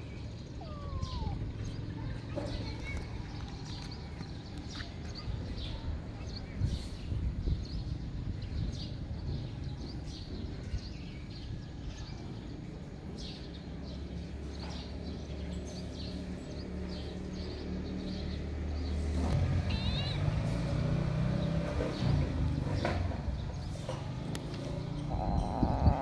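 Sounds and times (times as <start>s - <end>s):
small birds chirping: 0.0s - 26.0s
vehicle engine hum: 14.2s - 26.0s.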